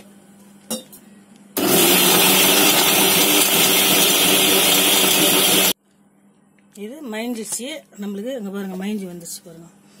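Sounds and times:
mixer grinder motor running: 1.6 - 5.8.

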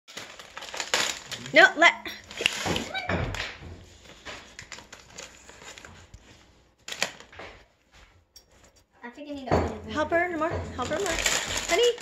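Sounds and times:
foil wrapping rustling: 0.1 - 8.0, 10.3 - 12.0
puppy pawsteps on tile floor: 2.3 - 8.9.

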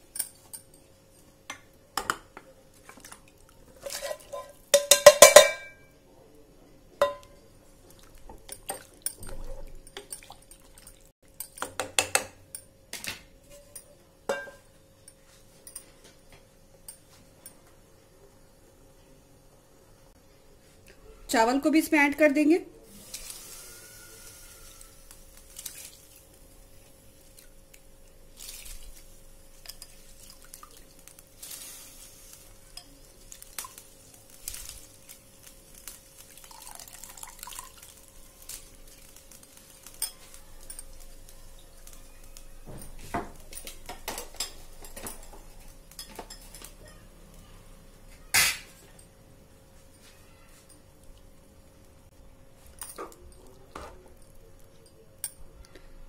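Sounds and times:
faint steady hum: 0.0 - 56.0
utensil clinking on metal pot: 3.8 - 5.9, 7.0 - 7.4, 8.3 - 12.7, 13.5 - 15.9
soft splashes and drips: 25.5 - 26.4, 27.2 - 29.1, 29.8 - 31.2.

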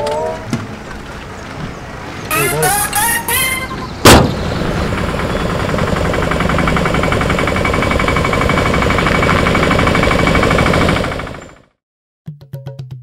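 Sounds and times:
engine idling with rapid clatter: 2.6 - 11.8.

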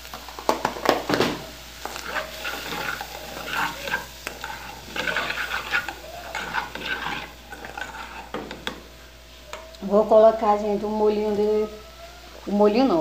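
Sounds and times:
food sizzling: 0.0 - 13.0
spoon scraping a metal pot: 1.8 - 8.8.

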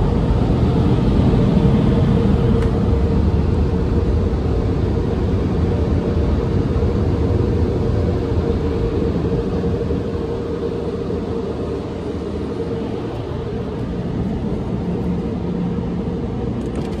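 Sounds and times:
car wash dryer blowers: 0.0 - 17.0.

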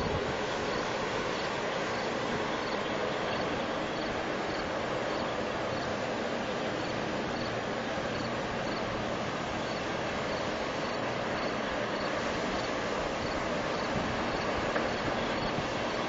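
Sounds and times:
dragline walking mechanical noise: 0.0 - 16.0.

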